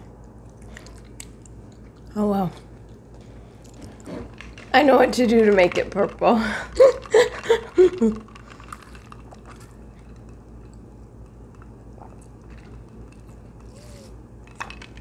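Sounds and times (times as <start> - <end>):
woman's voice: 2.1 - 2.6, 4.7 - 6.7
sipping through a plastic straw: 13.6 - 14.2.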